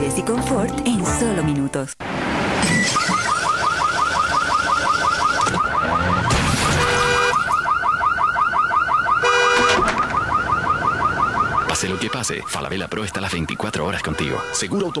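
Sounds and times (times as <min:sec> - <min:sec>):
car alarm rising chirps: 0:02.6 - 0:14.6.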